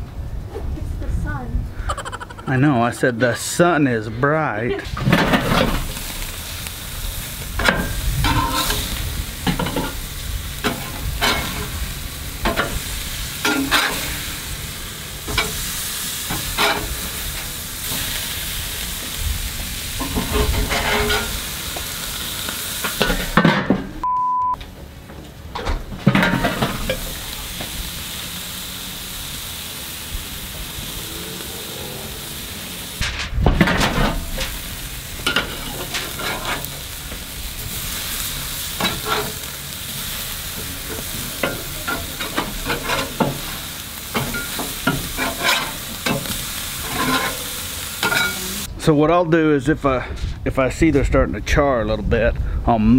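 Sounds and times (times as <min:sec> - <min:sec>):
burger patties sizzling on grill: 0:01.3 - 0:02.5, 0:04.3 - 0:24.0, 0:24.6 - 0:48.7
short high beep: 0:24.0 - 0:24.6
spatula scraping and clinking: 0:46.8 - 0:47.4.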